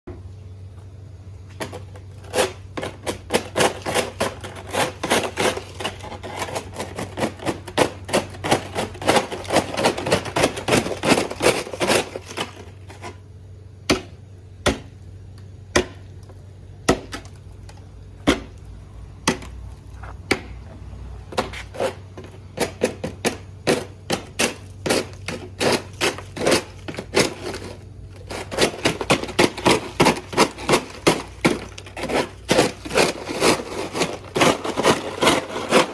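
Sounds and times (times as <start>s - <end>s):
ice scraper striking ice: 1.6s - 13.2s, 16.8s - 17.4s, 18.2s - 18.6s, 19.2s - 19.6s, 21.3s - 35.9s.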